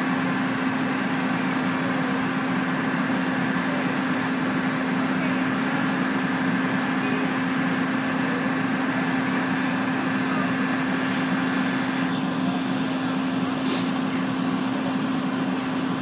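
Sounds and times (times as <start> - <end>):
engine running steadily: 0.0 - 16.0
brief high hiss: 13.6 - 14.0.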